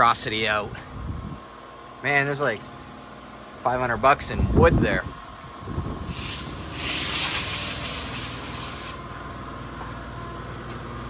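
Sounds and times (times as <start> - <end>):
compressed air hissing from hose: 6.0 - 9.0.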